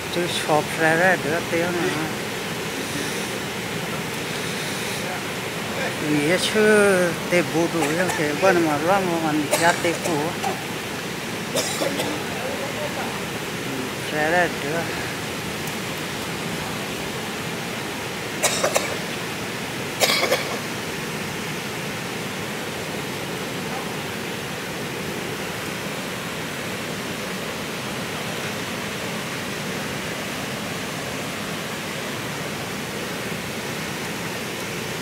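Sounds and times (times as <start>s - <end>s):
river water rushing over weir: 0.0s - 35.0s
sharp noise bursts: 0.5s - 10.7s.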